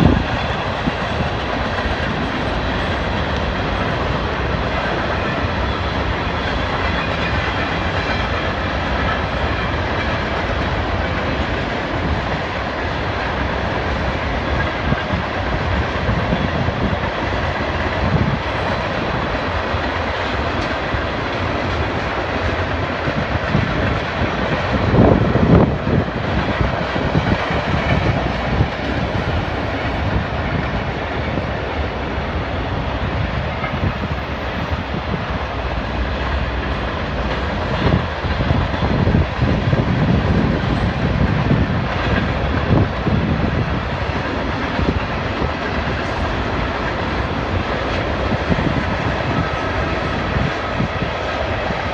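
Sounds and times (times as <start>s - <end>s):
freight train cars rolling past: 0.0s - 51.9s.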